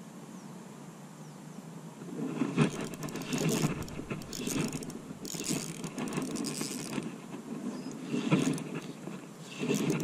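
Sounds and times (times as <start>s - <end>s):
fishing reel ratcheting: 2.6s - 7.2s, 7.9s - 10.0s.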